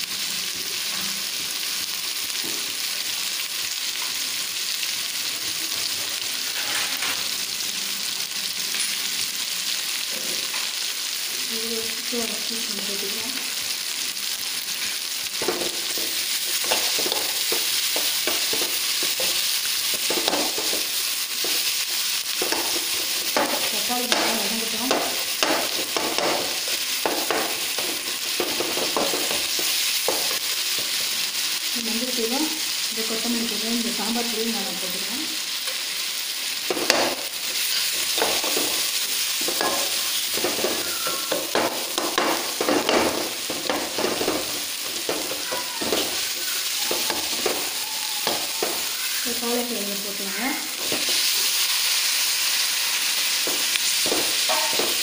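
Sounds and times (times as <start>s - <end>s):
food sizzling in hot oil: 0.0s - 55.0s
metal ladle scraping pan: 54.0s - 55.0s.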